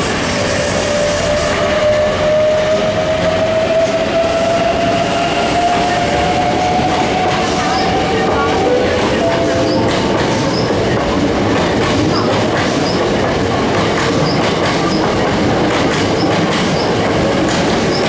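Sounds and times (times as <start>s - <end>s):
electric train rumbling past: 0.0s - 18.0s
wheels clicking over rail joints: 9.2s - 18.0s.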